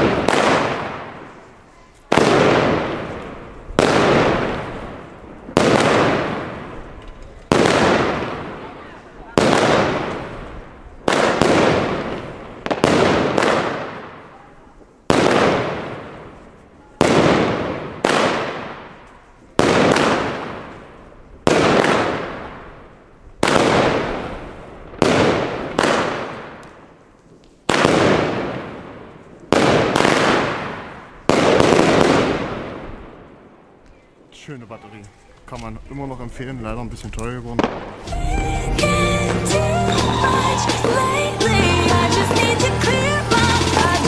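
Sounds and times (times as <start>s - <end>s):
firework battery bangs: 2.1s - 8.7s, 37.6s - 44.0s.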